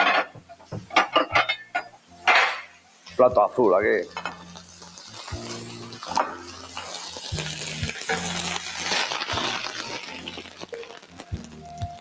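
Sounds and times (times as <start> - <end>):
metal utensil clinking: 0.0 - 2.7, 4.1 - 4.6
food sizzling in frying pan: 0.0 - 12.0.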